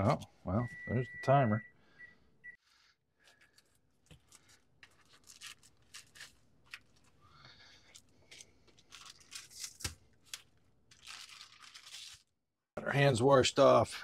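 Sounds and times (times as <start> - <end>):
soft handling of meat: 3.2 - 12.2
foil rustling and crinkling: 3.3 - 7.2, 7.8 - 12.3.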